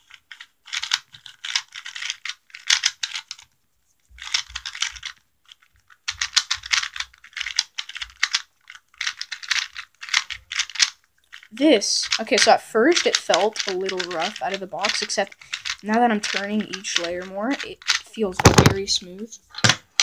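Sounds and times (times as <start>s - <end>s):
puzzle cube clicking: 0.0s - 3.5s, 4.2s - 20.0s.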